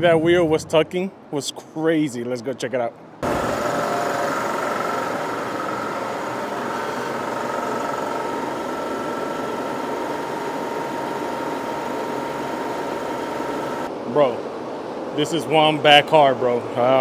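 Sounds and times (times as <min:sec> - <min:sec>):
machine whirring: 0:03.2 - 0:13.9.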